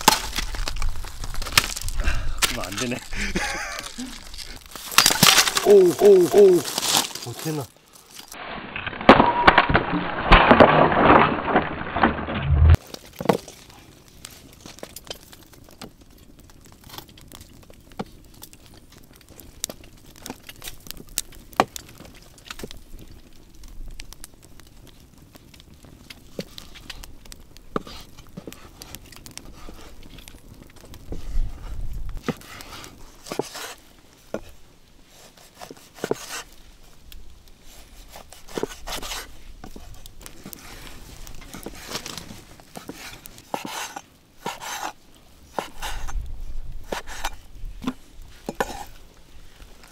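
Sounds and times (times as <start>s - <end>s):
axe splitting firewood: 0.0s - 3.2s, 3.8s - 13.6s, 38.0s - 40.7s
campfire crackle: 0.0s - 49.9s.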